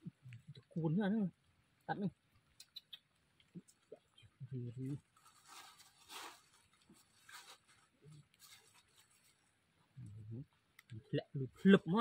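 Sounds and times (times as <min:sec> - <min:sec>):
plastic bag rustling: 0:05.0 - 0:09.5.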